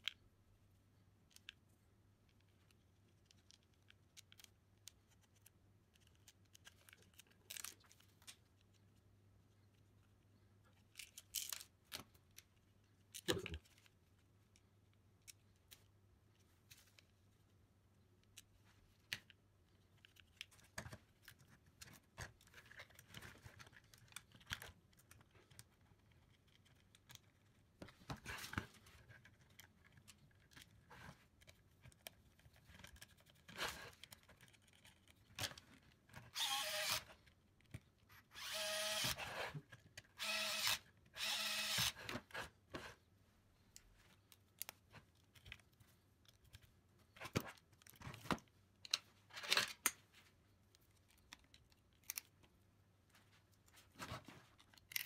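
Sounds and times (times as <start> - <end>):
plastic parts clicking: 50.7 - 52.6, 54.6 - 55.0.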